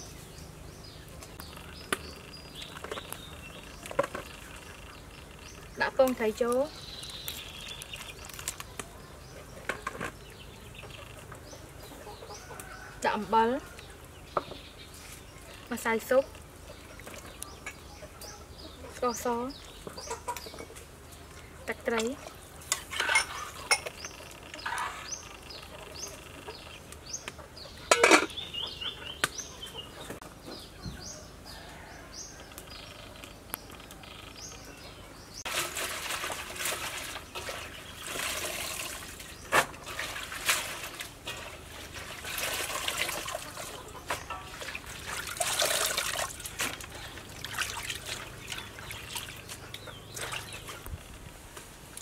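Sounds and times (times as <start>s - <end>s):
small birds chirping: 0.0s - 35.5s, 40.9s - 51.2s
water sloshing in metal basin: 21.8s - 25.1s, 35.5s - 50.8s.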